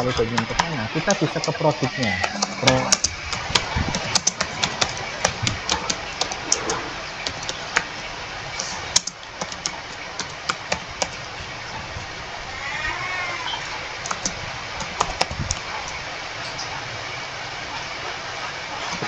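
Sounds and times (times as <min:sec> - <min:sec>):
computer keyboard typing: 0:00.0 - 0:11.8, 0:13.9 - 0:16.0.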